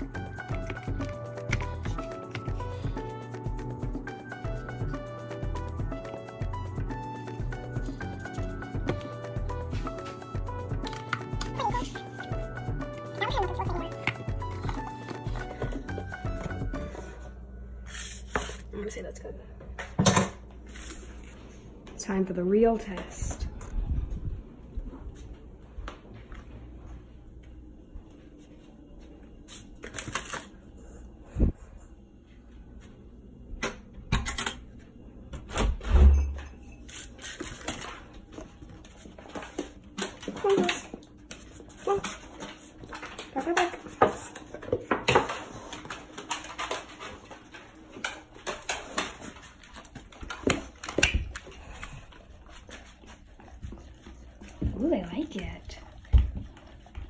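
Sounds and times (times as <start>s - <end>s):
paper plates rustling and scraping: 36.8s - 40.8s.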